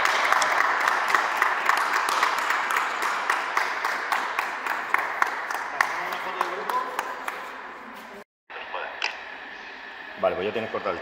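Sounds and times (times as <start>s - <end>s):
small group applauding: 0.0s - 7.7s.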